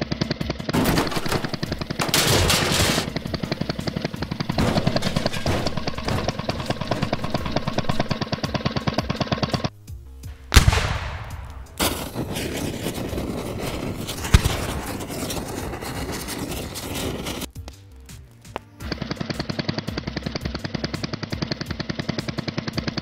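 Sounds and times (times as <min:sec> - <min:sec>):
rapid rattle of clicks: 0:00.2 - 0:09.7, 0:18.8 - 0:23.0
fire crackling: 0:00.7 - 0:21.6
loud explosion boom: 0:10.5 - 0:12.4.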